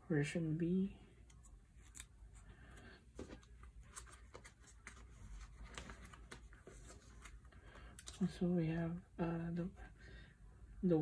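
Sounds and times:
plastic sleeves crinkling: 3.2 - 8.4.

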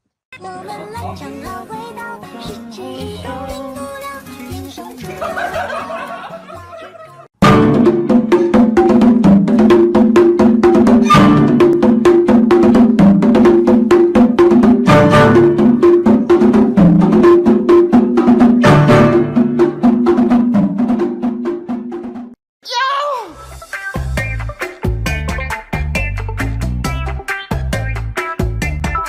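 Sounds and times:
loud background music: 7.4 - 20.4, 23.4 - 29.0.

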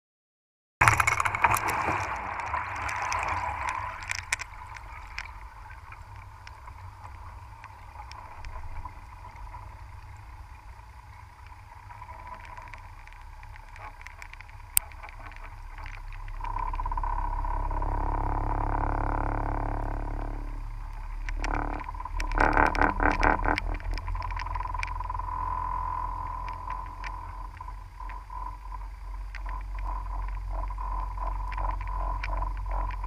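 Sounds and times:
clicks and knocks: 0.8 - 5.4
low underwater rumble: 0.8 - 33.0.

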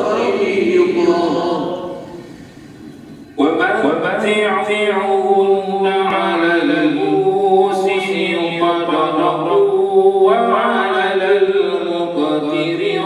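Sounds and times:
man chanting melodically: 3.3 - 13.0.

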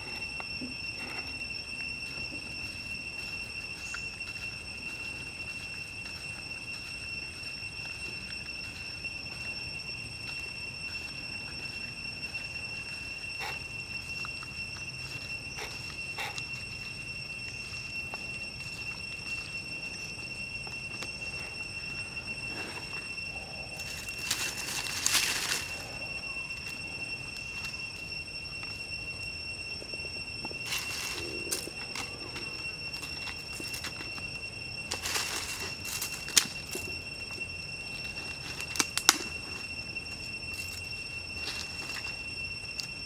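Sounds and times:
high droning insect call: 0.0 - 43.0
leaf crackling in hands: 23.6 - 28.0, 30.6 - 43.0.

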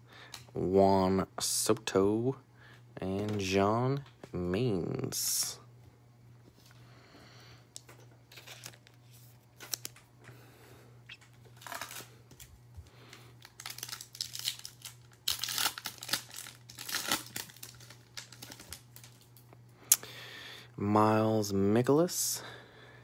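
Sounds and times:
foil wrapper crinkling: 7.8 - 10.1, 11.1 - 19.4
foil wrapper tearing: 8.3 - 10.0, 11.1 - 12.5, 13.4 - 19.4.

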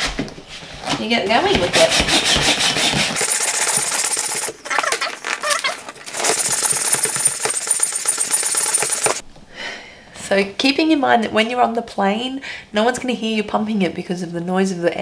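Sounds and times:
air pump rattling rush of air: 2.9 - 9.2.

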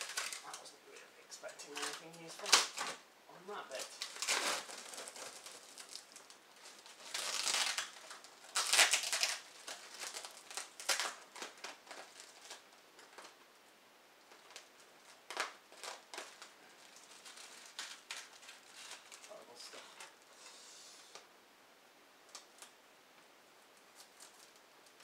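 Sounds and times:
plastic packing crinkling: 0.0 - 0.8, 1.5 - 13.4, 14.2 - 20.2, 23.8 - 25.0.

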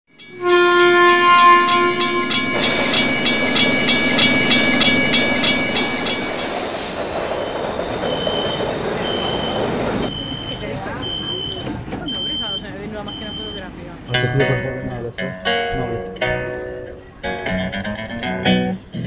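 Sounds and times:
train wheels clattering: 0.2 - 19.0
train horn: 0.3 - 3.2.

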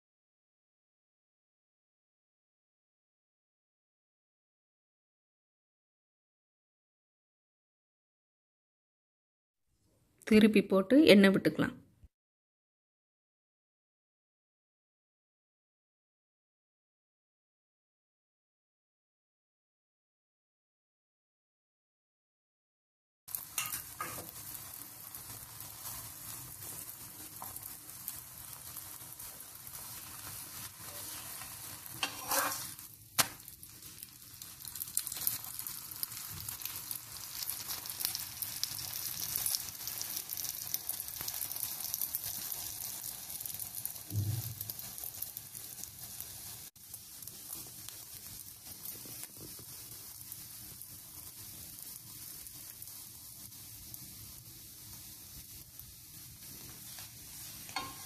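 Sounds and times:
bread sizzling on griddle: 23.3 - 58.0.

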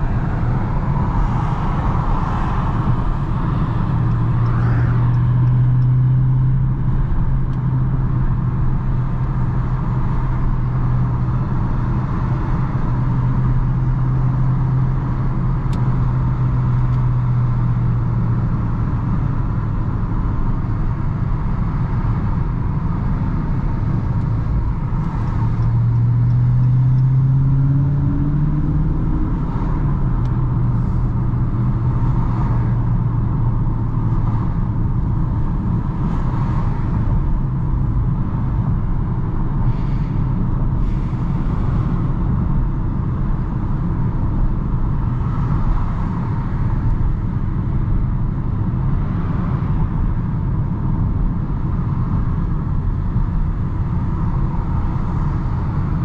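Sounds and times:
car engine cruising: 0.0 - 56.0
road and tyre noise: 0.0 - 56.0.

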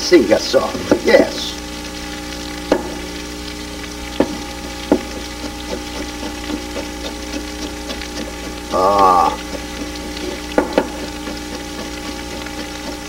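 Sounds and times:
steady hiss and hum: 0.0 - 13.0
knife chopping on wooden board: 4.2 - 8.6, 9.5 - 13.0.

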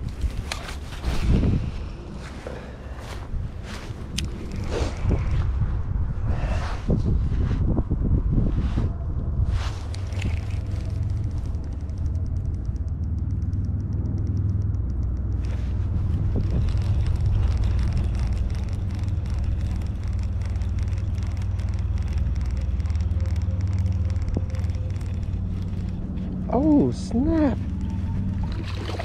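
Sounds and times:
wind buffeting microphone: 0.0 - 29.0
fishing reel ticking: 10.0 - 15.5, 16.1 - 26.6.

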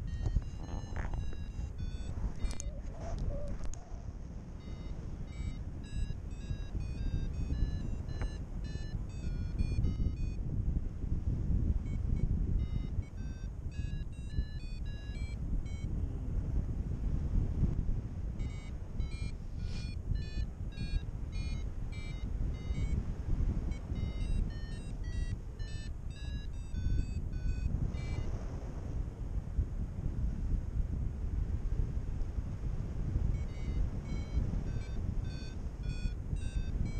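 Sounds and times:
variometer beeping: 0.0 - 3.8, 4.6 - 10.4, 11.8 - 16.0, 18.4 - 28.3, 33.3 - 36.9
wind rumbling over microphone: 0.0 - 36.9.

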